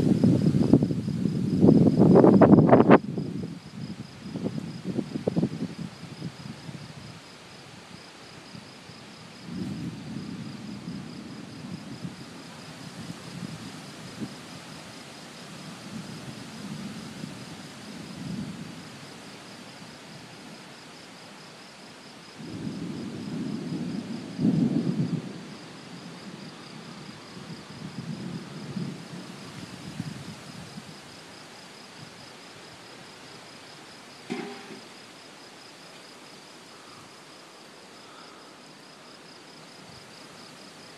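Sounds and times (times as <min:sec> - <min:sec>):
crickets chirping: 0:00.0 - 0:40.9
thunder rumbling: 0:09.4 - 0:14.4, 0:22.4 - 0:30.9.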